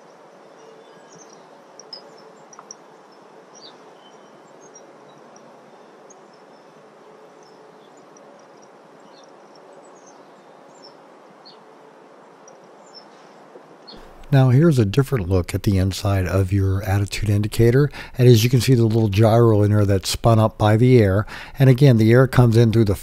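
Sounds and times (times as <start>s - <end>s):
faint bird chirps: 0.0s - 11.7s
steady low hiss: 0.0s - 23.0s.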